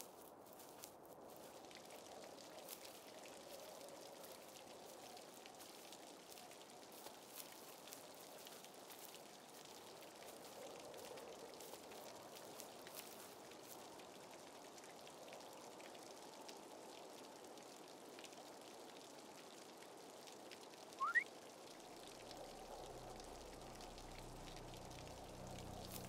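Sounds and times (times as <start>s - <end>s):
faint outdoor hiss: 0.0s - 26.0s
quick rising chirp: 21.0s - 21.2s.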